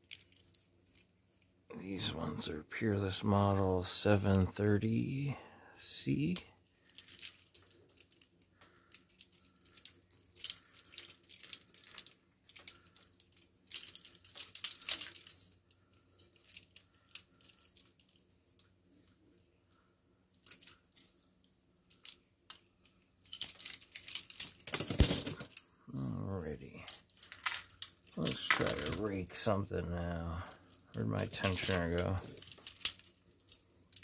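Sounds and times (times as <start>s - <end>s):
metal handcuffs clinking: 0.0s - 1.5s, 6.2s - 19.5s, 20.3s - 29.2s, 30.4s - 34.0s.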